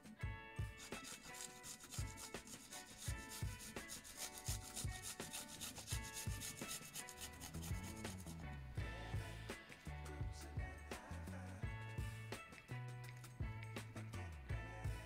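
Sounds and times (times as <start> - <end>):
background music: 0.0 - 15.0
garlic rasping on metal grater: 0.8 - 8.4.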